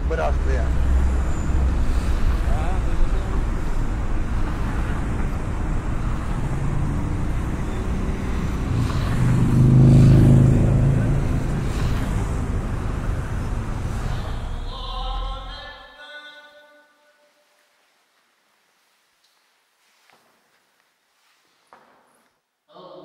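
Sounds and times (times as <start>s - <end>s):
cars driving by: 0.0s - 15.6s
vehicle engine rumble passing: 0.0s - 15.7s.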